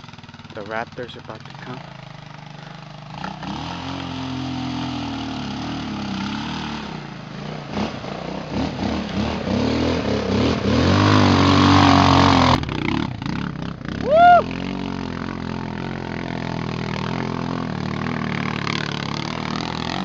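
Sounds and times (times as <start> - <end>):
quad engine revving: 0.0 - 20.0
water splashing: 3.2 - 13.4.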